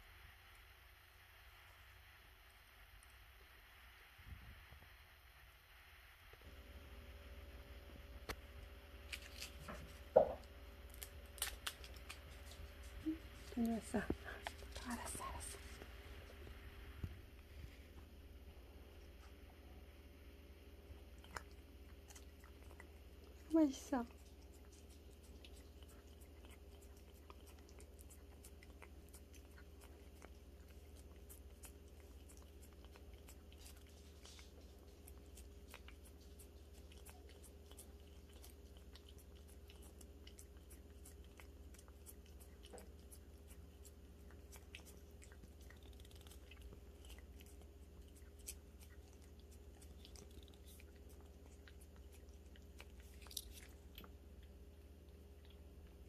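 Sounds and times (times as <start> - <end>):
low steady hum: 0.0 - 56.0
cat licking wet clicks: 20.9 - 56.0.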